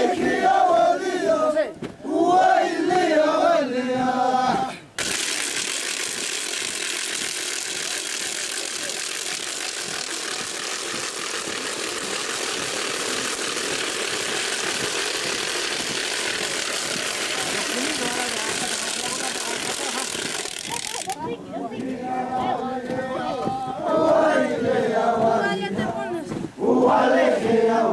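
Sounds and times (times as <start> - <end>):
crowd singing and chanting: 0.0 - 5.0, 21.0 - 27.9
steady hiss: 4.8 - 21.2.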